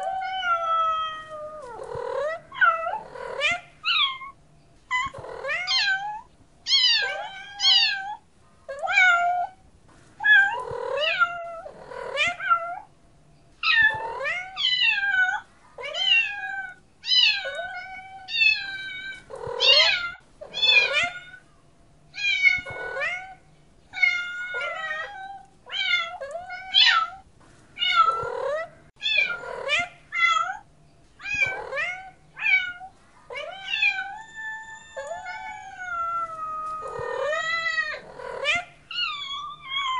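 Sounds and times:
cat meowing: 0:00.0 - 0:09.6, 0:10.2 - 0:12.9, 0:13.6 - 0:21.4, 0:22.2 - 0:27.2, 0:27.8 - 0:30.6, 0:31.2 - 0:39.9.

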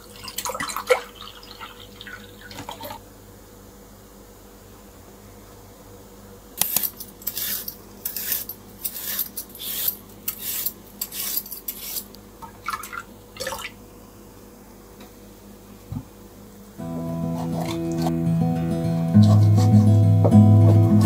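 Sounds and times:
peeler scraping yam skin: 0:06.6 - 0:12.2.

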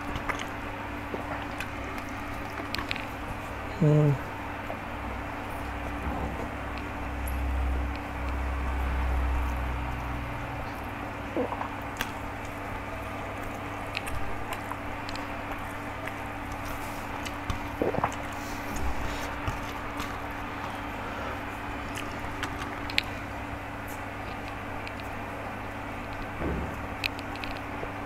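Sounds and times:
chewing: 0:00.0 - 0:03.6, 0:10.6 - 0:26.4
low steady hum: 0:00.0 - 0:28.0.

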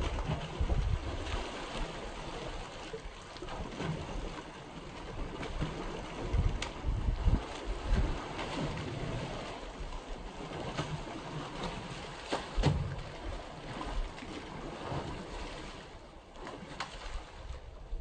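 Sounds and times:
wind buffeting microphone: 0:00.0 - 0:01.8, 0:05.3 - 0:10.0
water sloshing and splashing: 0:00.0 - 0:18.0.

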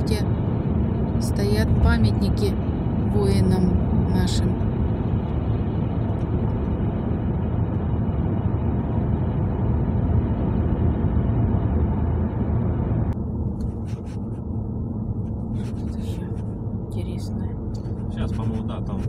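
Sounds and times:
road and engine rumble in car: 0:00.0 - 0:19.0.

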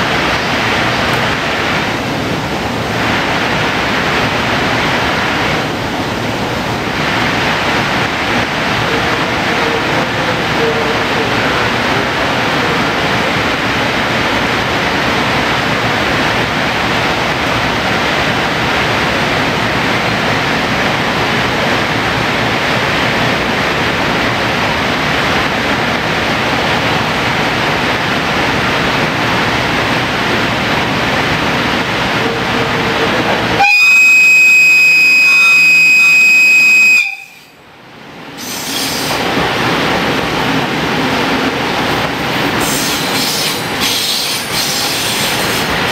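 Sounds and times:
steady noise: 0:00.0 - 0:45.9
locomotive horn: 0:08.8 - 0:11.7, 0:32.1 - 0:37.6.

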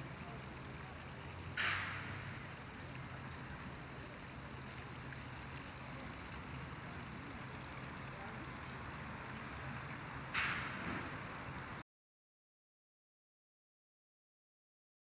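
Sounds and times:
steady outdoor hiss: 0:00.0 - 0:11.8.

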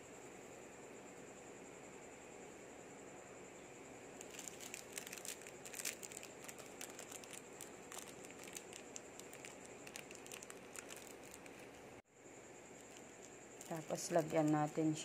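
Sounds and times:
plastic crinkling: 0:04.2 - 0:11.8, 0:12.8 - 0:14.8.

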